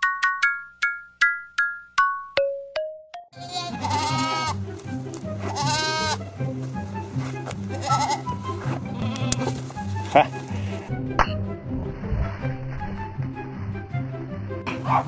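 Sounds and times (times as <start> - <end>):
background music with bass line: 2.4 - 15.0
goat bleating: 3.4 - 4.6, 5.3 - 6.3, 7.7 - 10.4.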